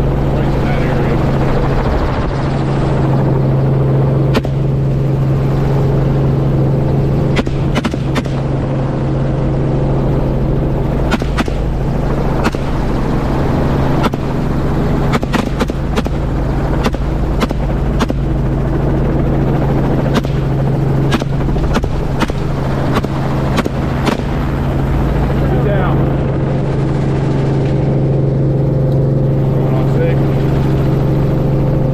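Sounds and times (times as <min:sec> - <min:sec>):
helicopter engine and rotor drone: 0:00.0 - 0:31.9
rifle shots: 0:04.3 - 0:04.7, 0:07.3 - 0:08.5, 0:11.1 - 0:11.7, 0:12.4 - 0:12.8, 0:14.0 - 0:14.4, 0:15.1 - 0:18.3, 0:20.1 - 0:24.4.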